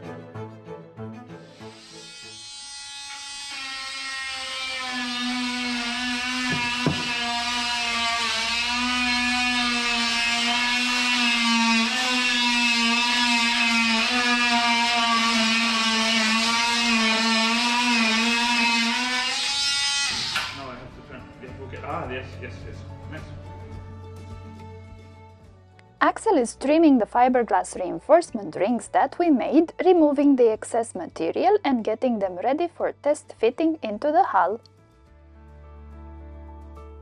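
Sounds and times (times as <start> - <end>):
power tool whine: 1.5 - 20.8
knock: 6.5 - 7.2.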